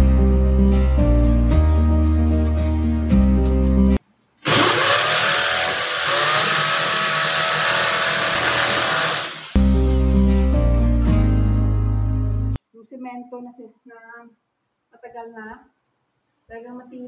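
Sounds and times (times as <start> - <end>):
acoustic guitar music: 0.0 - 4.0
electric drill grinding into wall: 4.4 - 10.4.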